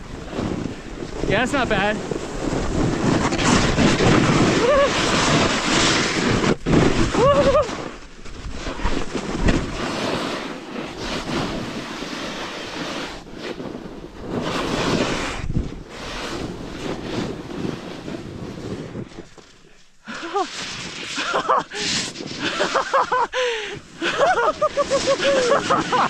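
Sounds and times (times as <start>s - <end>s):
wind on microphone: 0.0s - 19.4s
snowboard scraping over snow: 0.0s - 26.0s.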